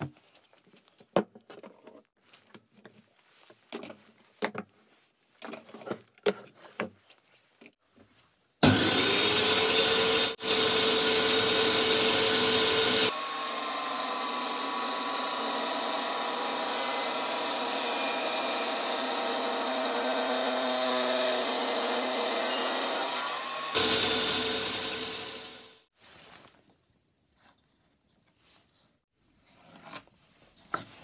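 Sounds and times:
saw blade cutting wood: 0:08.6 - 0:25.8
table saw running: 0:08.6 - 0:25.9.

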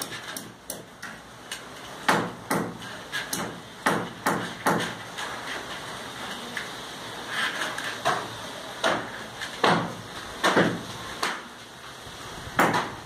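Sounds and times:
hammer striking masonry wall: 0:00.0 - 0:05.2, 0:08.0 - 0:11.5, 0:12.6 - 0:13.0.

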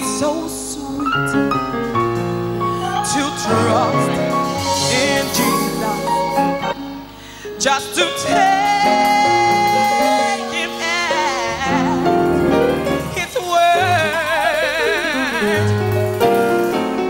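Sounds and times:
woman singing a hymn: 0:00.0 - 0:01.6, 0:02.8 - 0:06.8, 0:07.6 - 0:12.5
electronic keyboard chords: 0:00.0 - 0:17.0.

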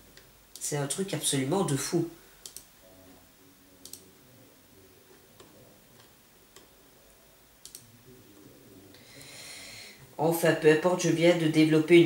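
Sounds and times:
computer mouse clicking: 0:02.4 - 0:02.7, 0:03.8 - 0:04.0, 0:07.6 - 0:07.9.

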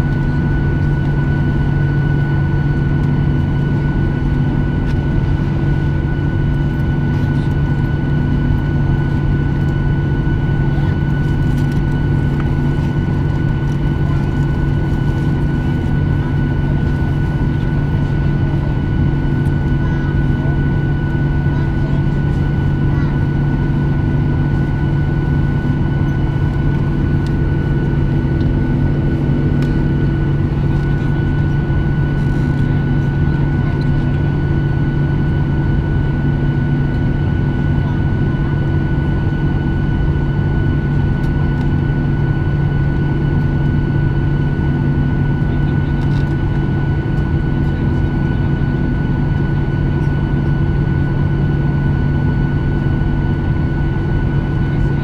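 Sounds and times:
airplane cabin drone: 0:00.0 - 0:55.0
jet engines idling: 0:00.0 - 0:55.0.

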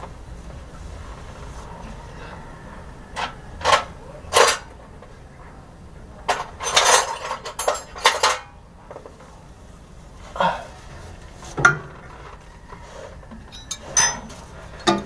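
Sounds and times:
tools and metal parts clanking: 0:03.2 - 0:04.8, 0:06.3 - 0:09.1, 0:13.3 - 0:15.0.

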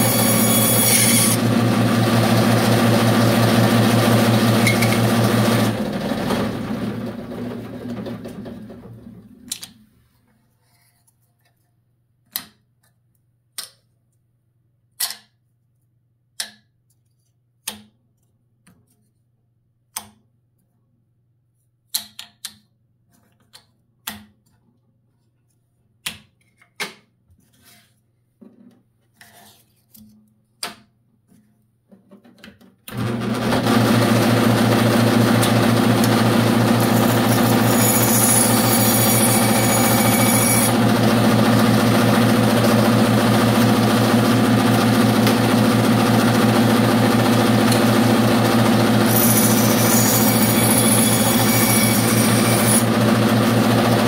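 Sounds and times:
bandsaw running: 0:00.0 - 0:08.4, 0:32.9 - 0:54.0.

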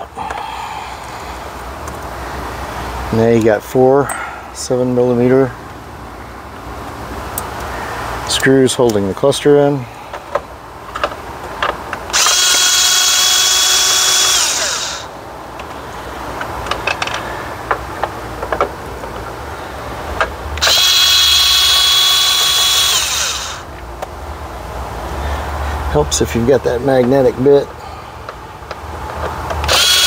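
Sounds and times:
clicks and taps of tool and screws: 0:10.1 - 0:12.2, 0:16.4 - 0:19.3, 0:28.2 - 0:29.7
cordless drill motor whine: 0:12.1 - 0:15.1, 0:20.6 - 0:23.7, 0:29.6 - 0:30.0.

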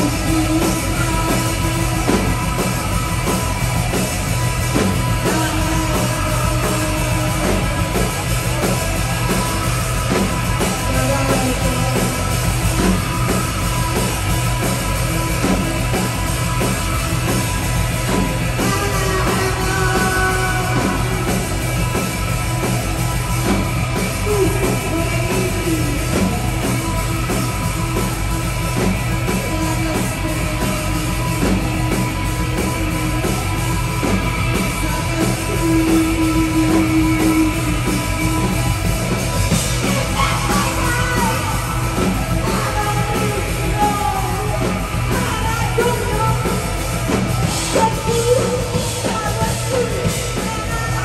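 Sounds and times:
person singing: 0:00.0 - 0:02.8, 0:04.7 - 0:09.5, 0:10.5 - 0:13.1, 0:18.0 - 0:21.6, 0:24.0 - 0:26.7, 0:29.1 - 0:31.6, 0:34.1 - 0:38.8, 0:39.5 - 0:51.0
bass guitar: 0:00.0 - 0:51.0
drum kit: 0:00.0 - 0:51.0
electric guitars: 0:00.0 - 0:51.0.

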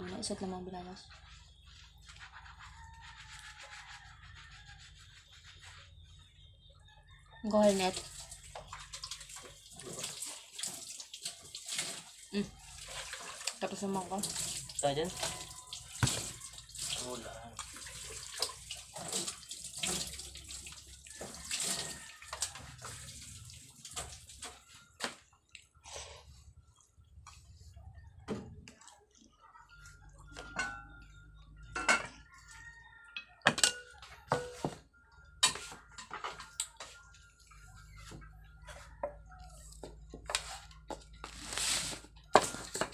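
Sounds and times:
wet chewing and mouth smacks: 0:25.2 - 0:25.8.

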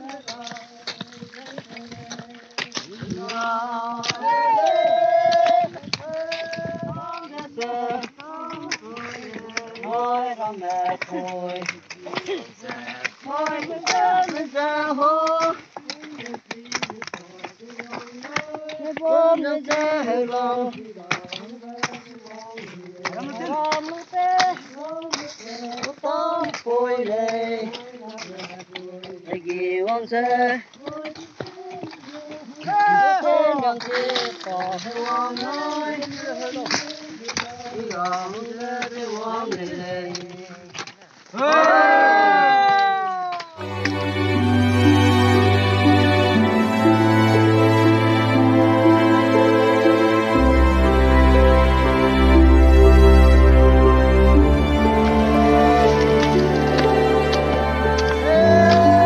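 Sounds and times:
hoes knocking into dry soil: 0:00.0 - 0:20.0, 0:20.6 - 0:32.7
voices singing: 0:00.0 - 0:25.2, 0:43.6 - 0:59.0.

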